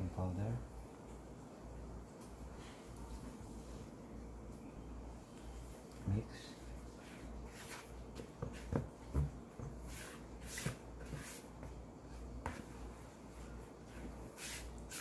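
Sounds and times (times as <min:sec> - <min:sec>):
spatula swishing flour in bowl: 0:06.8 - 0:08.8, 0:09.8 - 0:15.0.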